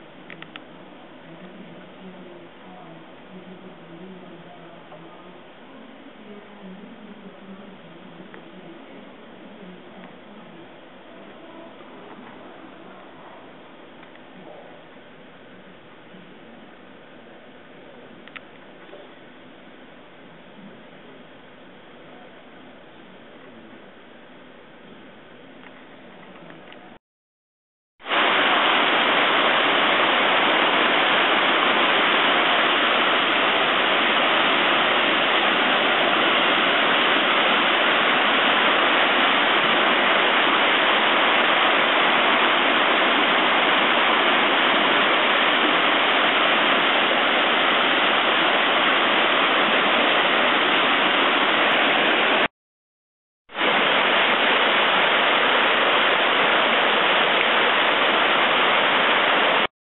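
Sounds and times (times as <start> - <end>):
water rushing through rapids: 28.0 - 52.5, 53.6 - 59.7.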